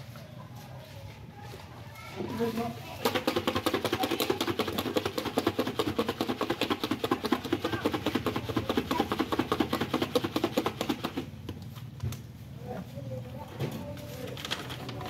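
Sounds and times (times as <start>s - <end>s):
fast sharp knocks: 3.0s - 11.3s.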